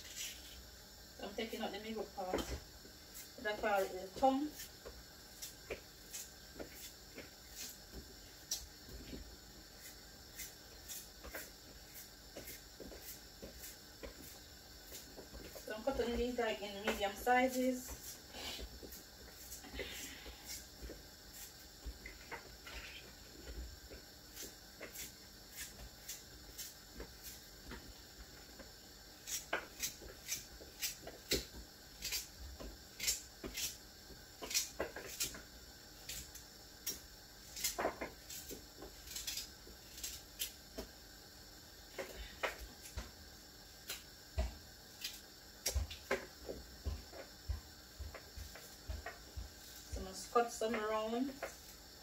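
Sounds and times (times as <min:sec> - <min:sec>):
knife cutting carrots: 0:36.0 - 0:40.6.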